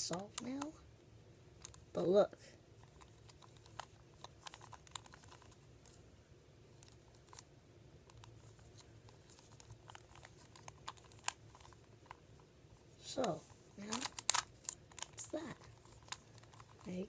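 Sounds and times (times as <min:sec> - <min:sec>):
puzzle cube plastic clicks: 0:00.0 - 0:00.8, 0:01.6 - 0:01.9, 0:02.8 - 0:06.0, 0:06.8 - 0:12.2, 0:13.0 - 0:17.0.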